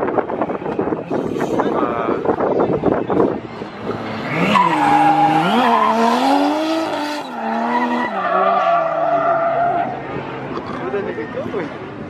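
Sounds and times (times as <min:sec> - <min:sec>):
tyres skidding on pavement: 0:03.2 - 0:11.2
car engine revving hard: 0:03.8 - 0:08.2.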